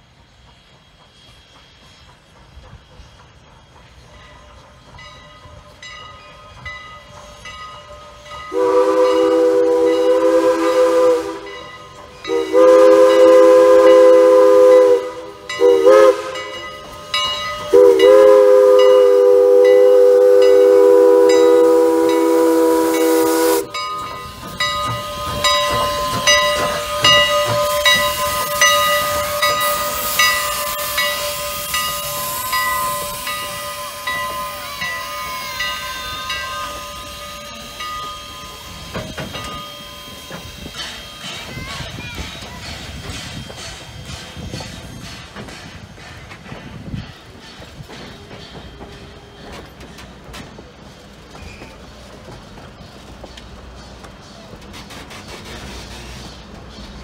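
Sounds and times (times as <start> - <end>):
steam train running and hissing: 0.0 - 57.0
steam locomotive whistle: 6.4 - 45.0.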